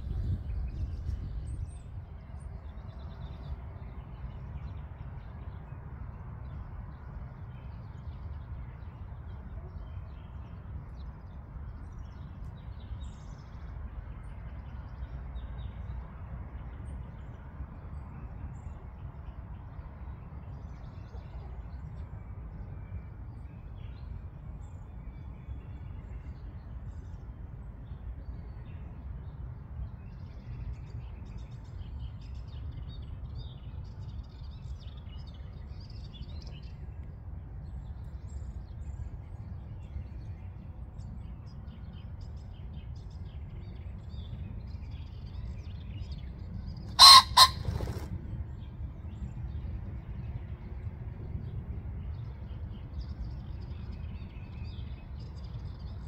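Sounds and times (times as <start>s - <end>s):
steady low rumble: 0.0s - 56.0s
pheasant crowing: 46.9s - 48.1s.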